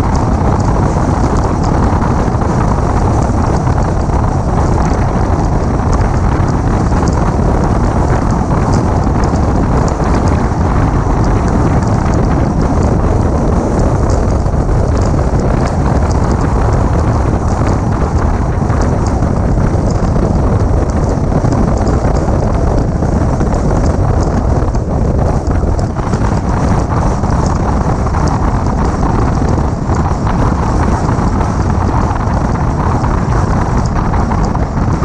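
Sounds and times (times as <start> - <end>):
car running noise: 0.0 - 35.0
wind rushing over microphone: 0.0 - 35.0.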